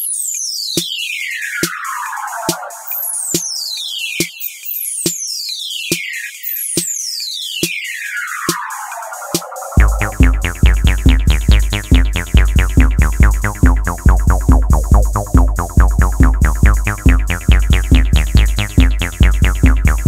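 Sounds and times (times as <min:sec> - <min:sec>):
falling synthesizer zaps: 0:00.1 - 0:15.0
drum machine beat: 0:00.8 - 0:20.0
heavy bass pulses: 0:09.8 - 0:20.0.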